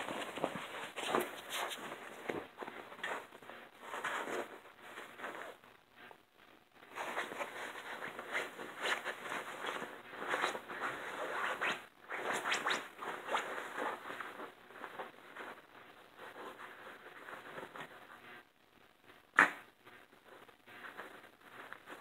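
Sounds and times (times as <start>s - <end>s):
paws scratching on fabric: 0.0s - 5.6s, 6.9s - 18.1s.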